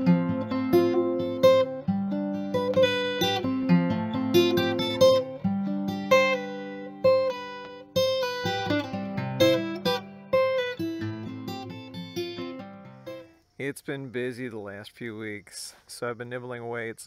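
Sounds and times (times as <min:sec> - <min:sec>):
acoustic guitar picking: 0:00.0 - 0:13.4.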